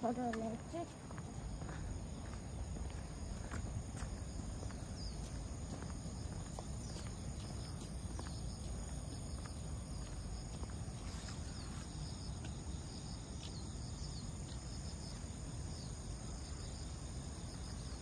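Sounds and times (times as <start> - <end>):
insects trilling: 0.0 - 18.0.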